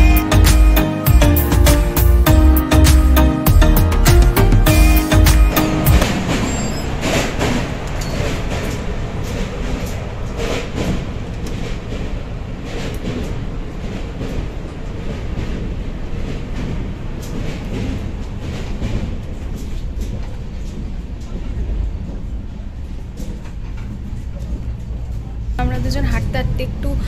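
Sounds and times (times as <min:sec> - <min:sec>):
background music: 0:00.0 - 0:06.2
train rattles and clacks: 0:05.5 - 0:27.0
train wheels rumbling on rails: 0:05.5 - 0:27.0.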